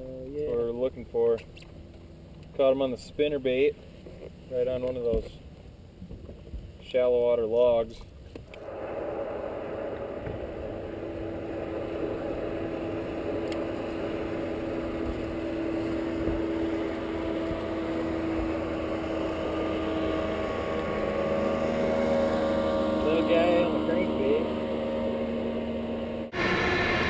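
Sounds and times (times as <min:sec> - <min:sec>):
electric trolling motor humming: 0:08.5 - 0:27.0.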